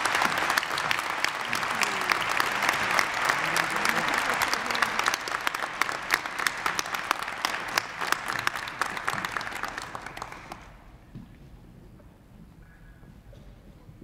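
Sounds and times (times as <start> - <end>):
audience applause: 0.0 - 10.8.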